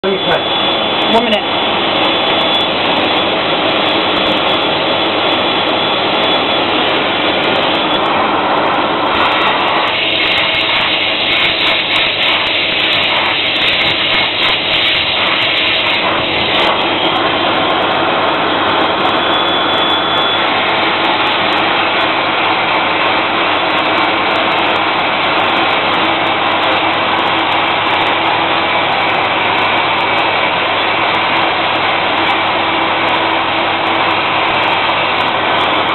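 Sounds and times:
vacuum motor whining: 0:00.0 - 0:35.9
hand tool sucking on carpet: 0:00.1 - 0:29.1.

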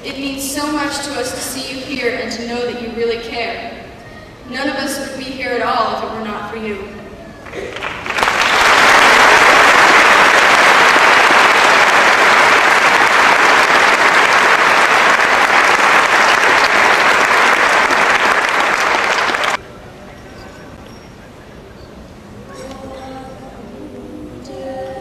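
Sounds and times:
audience applauding: 0:07.4 - 0:19.6.

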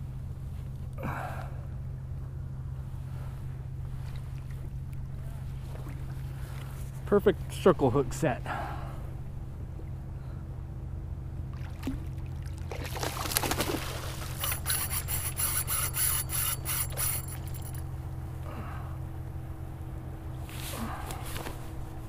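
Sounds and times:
fish splashing in water: 0:11.5 - 0:14.4
fishing reel buzzing: 0:14.2 - 0:17.8.

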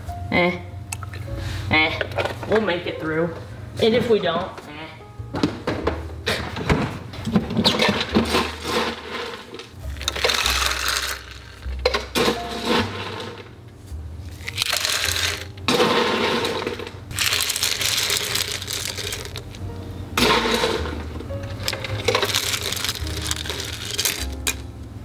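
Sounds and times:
ice cubes clattering into glass: 0:08.3 - 0:11.6, 0:14.4 - 0:19.5, 0:21.6 - 0:24.6
ice cracking in liquid: 0:09.9 - 0:11.4, 0:14.4 - 0:19.6, 0:21.7 - 0:24.6.

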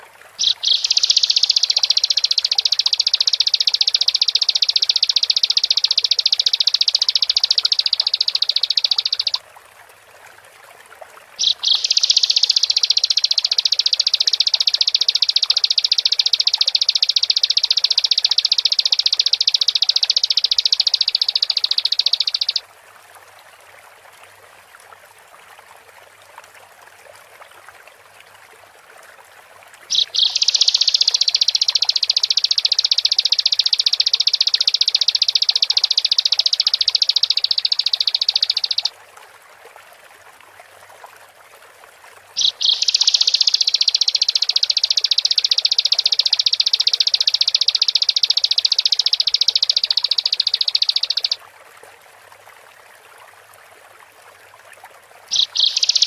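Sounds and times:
faint steady hiss: 0:00.0 - 0:56.0
bird singing high trills: 0:00.4 - 0:09.4, 0:11.4 - 0:22.6, 0:29.9 - 0:38.9, 0:42.4 - 0:51.4, 0:55.3 - 0:56.0.

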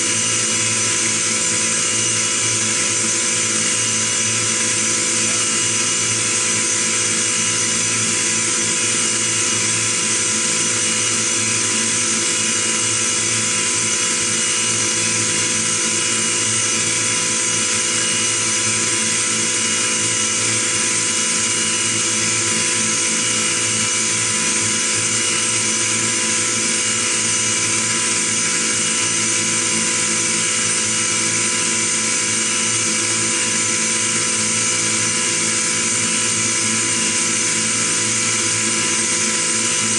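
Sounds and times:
milling machine whine: 0:00.0 - 0:39.9.

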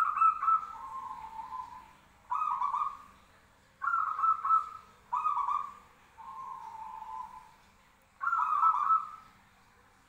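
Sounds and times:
dove cooing: 0:00.0 - 0:03.2, 0:03.8 - 0:07.6, 0:08.2 - 0:09.3.

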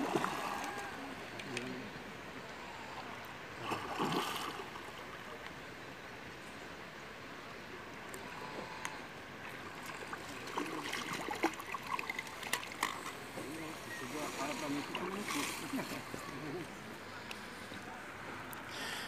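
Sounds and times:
landing net splashing into water: 0:03.6 - 0:04.8
water lapping: 0:09.4 - 0:19.0.

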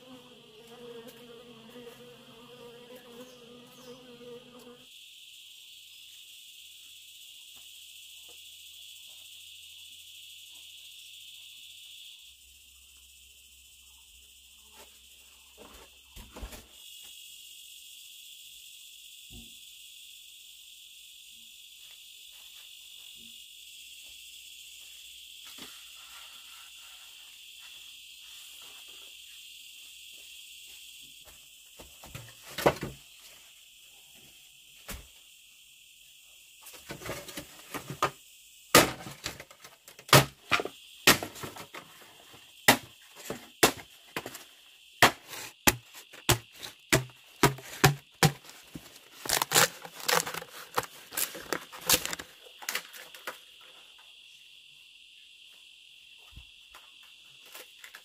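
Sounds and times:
insects chirring: 0:00.0 - 0:58.0.

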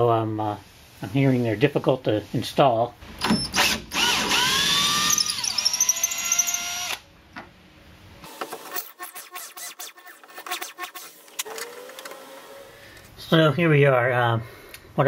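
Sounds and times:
drill motor whining: 0:03.3 - 0:07.0.

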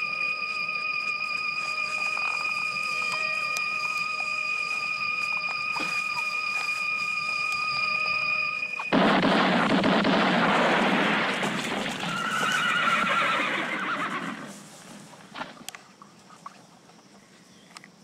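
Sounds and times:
loud burst of noise: 0:08.6 - 0:12.4
horse whinnying: 0:11.6 - 0:14.5
faint scattered clicks: 0:15.6 - 0:18.0.

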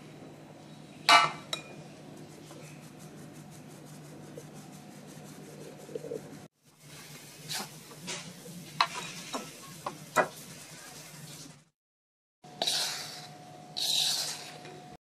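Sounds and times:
steady low hum: 0:00.0 - 0:06.5
powder rustling through sieve mesh: 0:02.0 - 0:09.3, 0:12.6 - 0:14.7.

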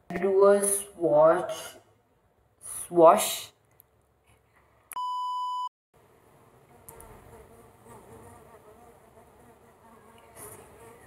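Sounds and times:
high censor bleep: 0:05.0 - 0:05.7.

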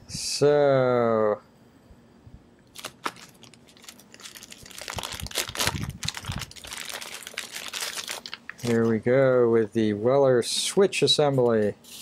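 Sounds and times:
plastic bag crinkling: 0:02.7 - 0:08.9.

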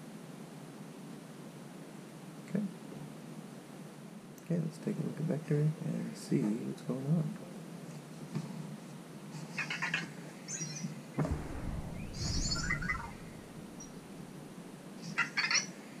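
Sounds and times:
low rumble: 0:11.2 - 0:15.0.

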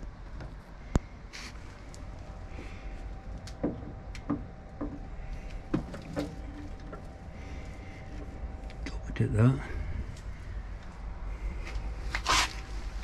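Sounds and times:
low steady rumble: 0:00.0 - 0:13.0
metal knocks and clunks: 0:03.6 - 0:07.2.

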